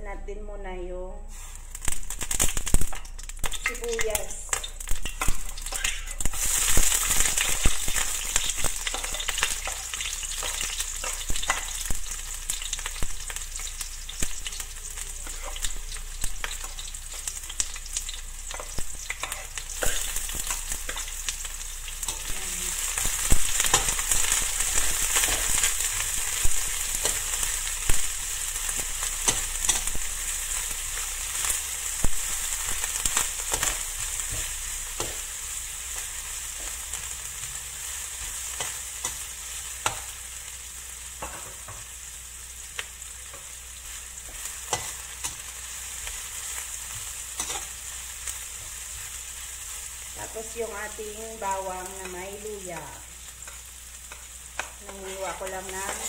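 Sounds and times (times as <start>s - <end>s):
onions sizzling in oil: 1.3s - 56.0s.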